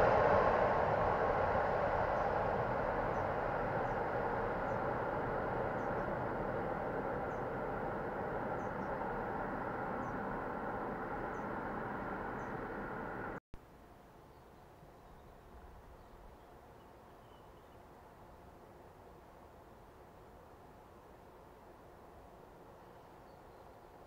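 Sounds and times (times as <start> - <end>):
freight train wheels rumbling on rails: 0.0 - 13.4.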